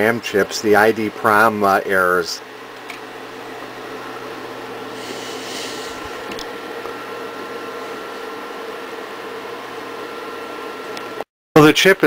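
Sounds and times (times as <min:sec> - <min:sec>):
computer humming and whirring: 0:00.0 - 0:12.0
brief hiss: 0:05.0 - 0:06.1.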